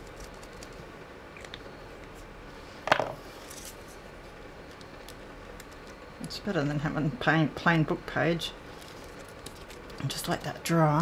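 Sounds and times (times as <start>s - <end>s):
paper rustling and clicking: 8.8s - 10.2s.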